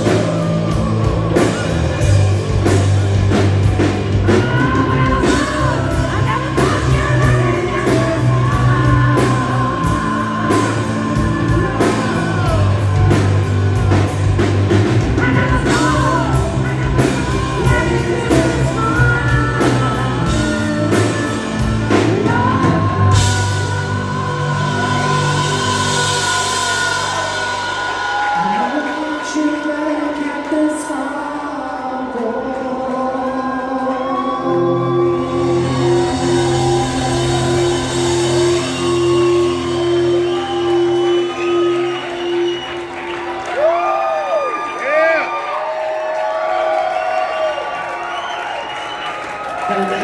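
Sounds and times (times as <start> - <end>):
hard rock band playing: 0.0 - 28.6, 34.6 - 45.4
drums: 0.0 - 50.0
man singing long notes: 4.1 - 42.6.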